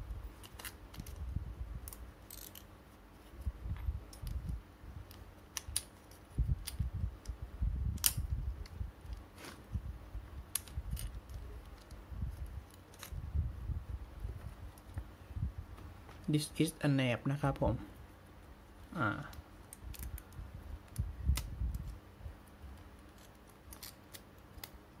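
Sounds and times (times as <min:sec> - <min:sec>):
plastic toy parts clicking and rattling: 0:00.4 - 0:02.7, 0:04.1 - 0:07.4, 0:08.0 - 0:09.3, 0:10.5 - 0:13.2, 0:19.6 - 0:24.8.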